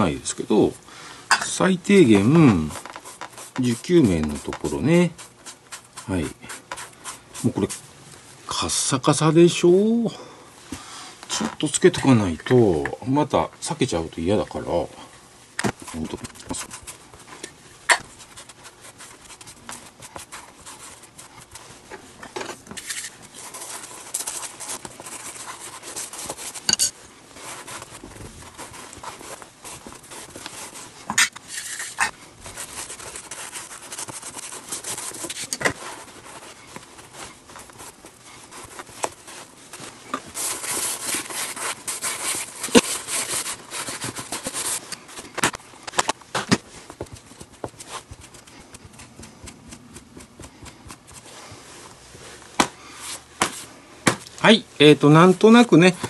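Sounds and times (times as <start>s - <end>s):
sponge rubbing leather: 2.2s - 7.8s, 27.3s - 44.8s.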